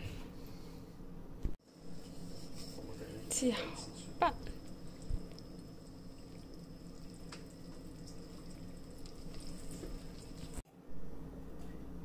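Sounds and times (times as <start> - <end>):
steady low hum: 0.0 - 12.0
spoon stirring wet batter: 3.8 - 10.6.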